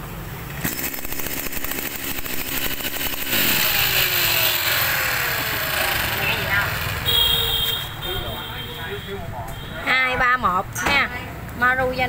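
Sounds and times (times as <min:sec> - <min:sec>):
brush cutter engine puttering: 0:00.6 - 0:07.3.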